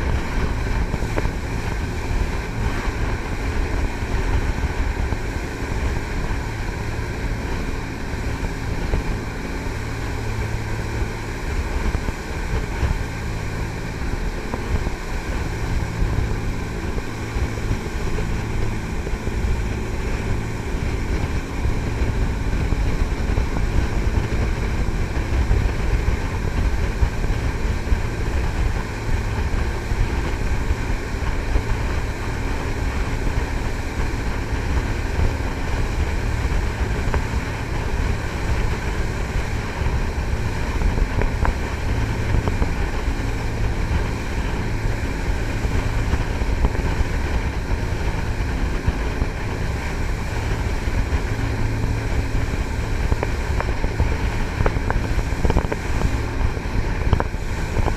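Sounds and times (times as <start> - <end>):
boat diesel engines running: 0.0 - 57.9
rushing water: 0.0 - 57.9
wind buffeting microphone: 0.0 - 57.9.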